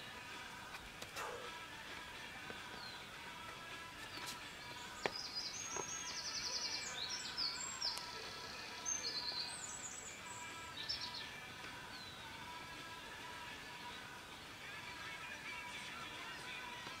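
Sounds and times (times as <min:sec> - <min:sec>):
songbird trilling: 0:04.6 - 0:11.3.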